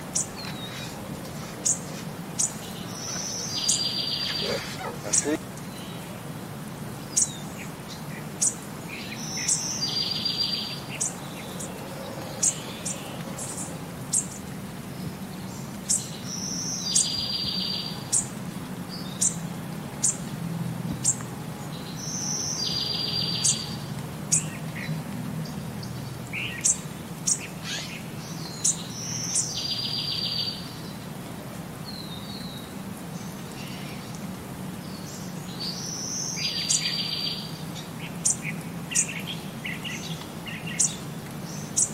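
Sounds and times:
songbird singing trill: 0.1s - 6.1s, 7.1s - 18.4s, 21.0s - 24.8s, 25.4s - 31.0s, 34.9s - 41.9s
bird chirps: 0.2s - 5.4s.

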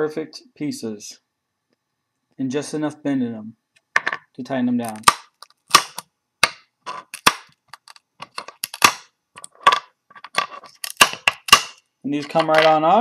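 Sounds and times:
plastic clamps clicking and snapping: 4.9s - 12.8s.

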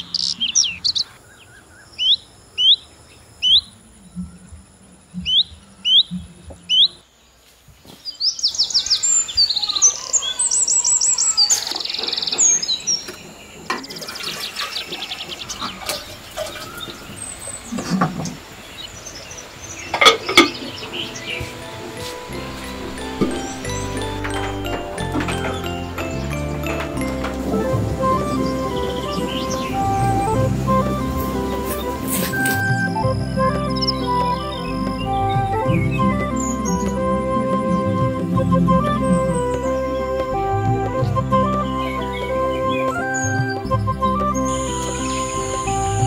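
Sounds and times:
birds chirping and trilling: 0.0s - 46.0s
bird whistling downward notes: 15.4s - 46.0s.

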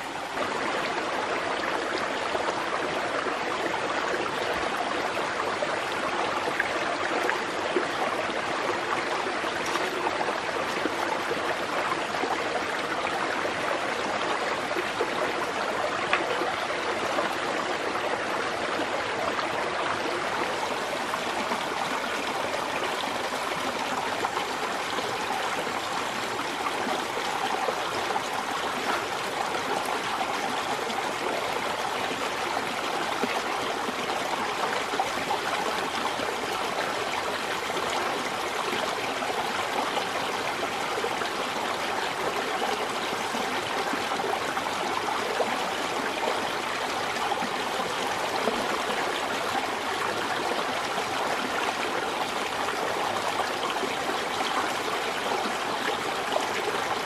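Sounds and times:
stream flowing over stones: 0.0s - 57.0s.

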